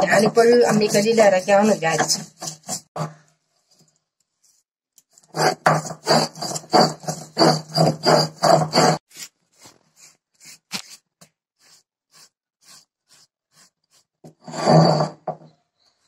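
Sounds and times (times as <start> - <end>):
stone roller grinding wet leaves: 0.0 - 2.9, 5.4 - 9.0.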